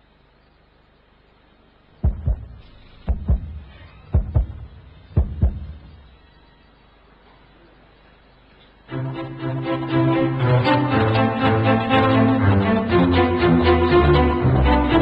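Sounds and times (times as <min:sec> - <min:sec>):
heartbeat thumps: 0:02.0 - 0:06.2.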